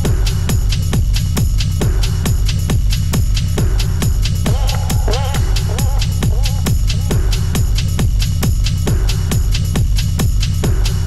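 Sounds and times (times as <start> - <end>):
electronic dance music: 3.3 - 9.6.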